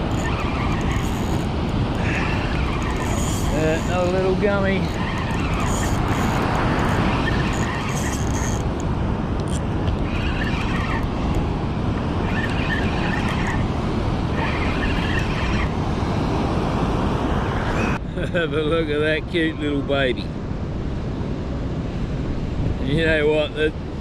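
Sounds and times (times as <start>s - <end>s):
fishing reel gears whirring: 0.0s - 11.4s, 12.1s - 15.7s
wind on microphone: 0.0s - 18.1s, 19.0s - 24.0s
surf rushing: 0.0s - 20.3s.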